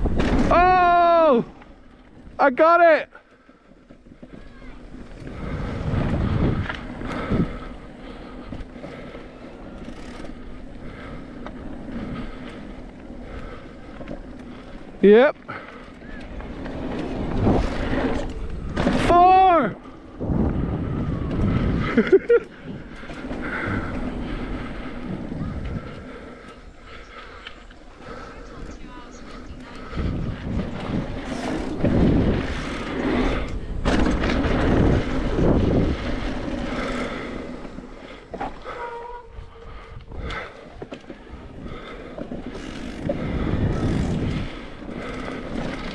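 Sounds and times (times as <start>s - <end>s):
bike tyres rolling on dirt: 0.0s - 45.9s
bike clicks and rattles: 3.2s - 45.9s
wind noise on microphone: 4.2s - 7.9s, 16.4s - 19.1s, 20.0s - 26.2s, 28.6s - 37.2s, 41.2s - 45.9s.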